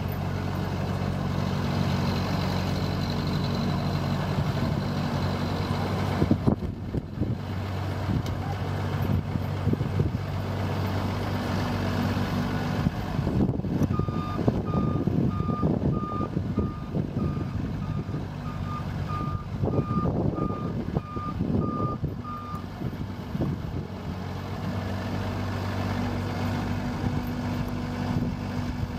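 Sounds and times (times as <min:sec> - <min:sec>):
road broom engine running: 0:00.0 - 0:28.9.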